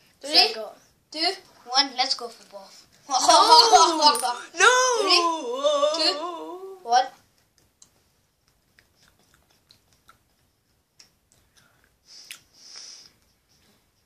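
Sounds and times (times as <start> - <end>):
chewing with wet mouth clicks: 7.4 - 12.5
brief hiss: 12.1 - 13.2.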